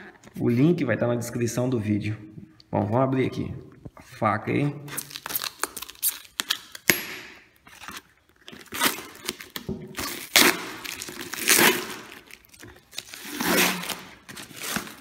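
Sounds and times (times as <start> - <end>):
packing tape ripping off cardboard: 4.9 - 7.0, 7.8 - 15.0.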